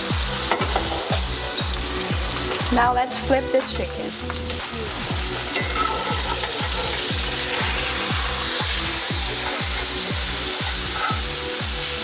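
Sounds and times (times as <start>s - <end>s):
background music with steady beat: 0.0s - 12.0s
chicken sizzling in skillet: 0.0s - 12.0s.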